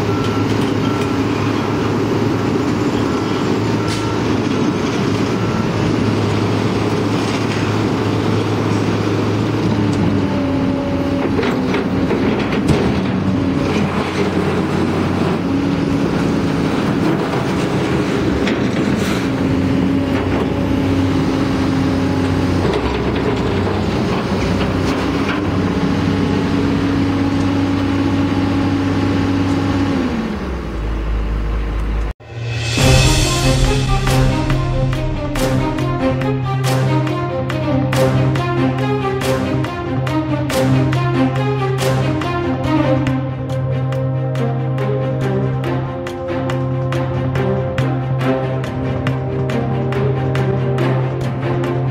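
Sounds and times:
hydraulic pump whine: 0.0 - 33.8
excavator diesel engine: 0.0 - 51.9.

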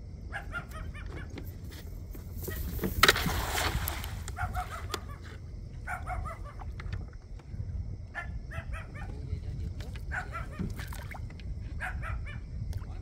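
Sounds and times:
noisy rustle or splash: 2.4 - 4.8.

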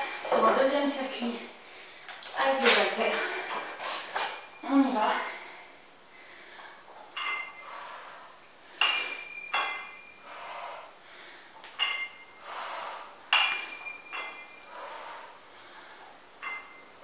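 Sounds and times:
hard breathing: 5.1 - 16.8
dumbbell plates clinking: 6.6 - 10.7, 11.6 - 17.0.

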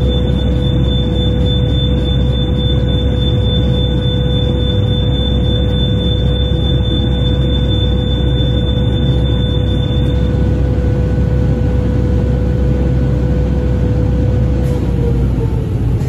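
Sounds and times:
thin high whine: 0.0 - 10.7
mid-pitched whine: 0.0 - 14.6
low machinery hum: 0.0 - 16.0.

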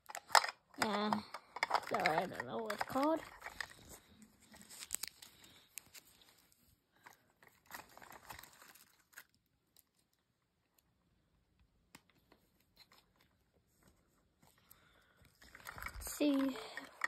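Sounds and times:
plastic wrapper crinkling: 0.1 - 10.2, 14.5 - 17.0.

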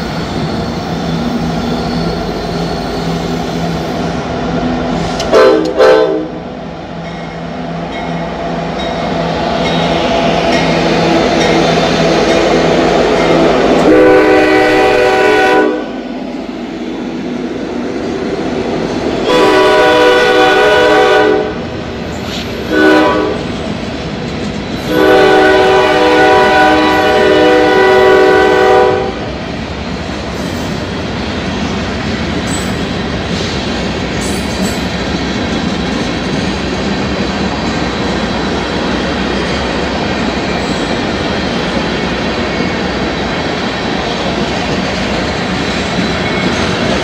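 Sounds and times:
locomotive air horn blasts: 5.3 - 6.4, 13.8 - 15.9, 19.2 - 21.6, 22.7 - 23.5, 24.9 - 29.2
freight cars rolling clickety-clack: 8.0 - 13.9, 23.4 - 25.0, 29.3 - 47.0.

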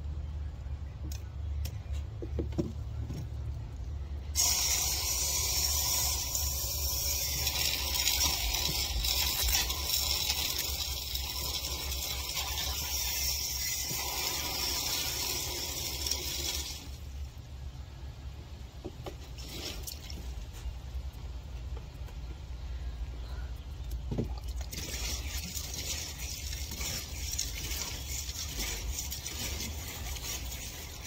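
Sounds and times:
hose nozzle spraying water: 4.3 - 17.1, 19.3 - 20.4, 24.4 - 31.0.

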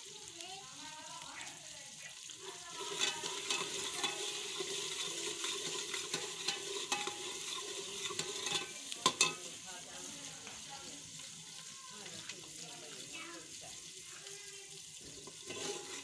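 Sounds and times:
curry sizzling: 0.0 - 16.0
ladle scraping in pot: 2.4 - 9.4, 15.1 - 16.0
ladle clinking against pot: 2.8 - 9.5, 15.2 - 16.0.

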